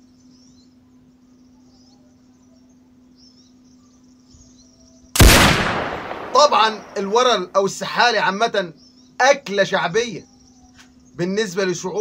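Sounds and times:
faint high chirping: 0:00.0 - 0:05.2, 0:05.9 - 0:12.0
steady low hum: 0:00.0 - 0:12.0
rifle shot with echo: 0:05.2 - 0:07.5.

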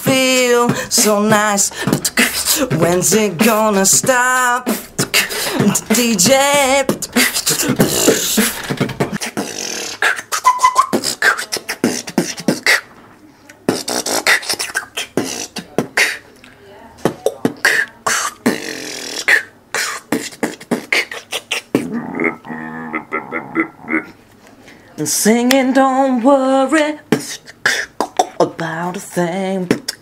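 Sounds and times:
beatboxing clicks and pops: 0:00.0 - 0:13.0, 0:13.6 - 0:16.2, 0:17.0 - 0:21.9, 0:27.1 - 0:30.0.

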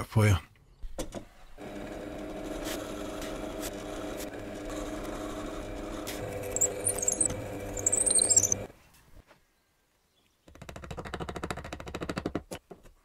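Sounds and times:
high wavering squeal: 0:06.5 - 0:08.6.

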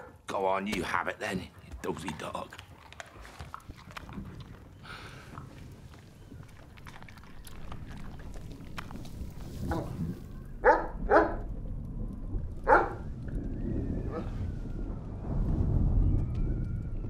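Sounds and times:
large dog barking: 0:00.0 - 0:00.2, 0:10.6 - 0:11.4, 0:12.6 - 0:13.0.

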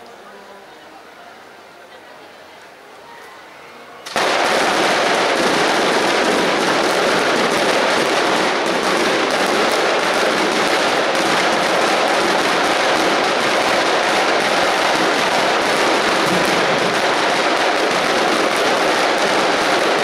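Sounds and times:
firecrackers crackling: 0:04.0 - 0:20.0.

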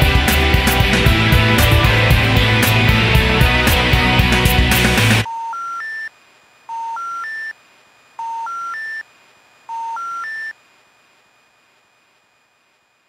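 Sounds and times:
band music: 0:00.0 - 0:05.3
rising telephone tone beeps: 0:05.2 - 0:06.1, 0:06.7 - 0:07.5, 0:08.2 - 0:09.0, 0:09.7 - 0:10.6.

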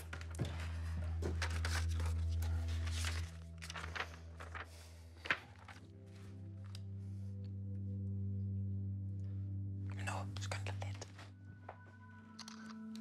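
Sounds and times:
paper rustling and shuffling: 0:00.0 - 0:06.9.

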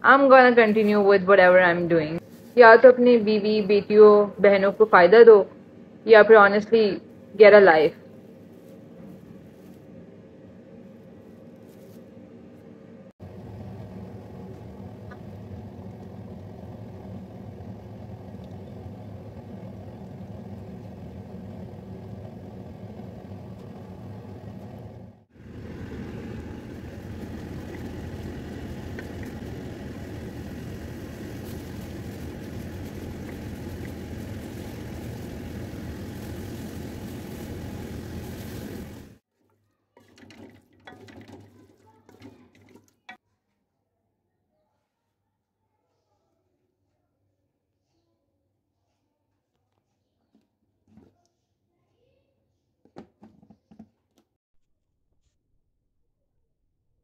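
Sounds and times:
faint scrapes and knocks: 0:50.2 - 0:51.3.

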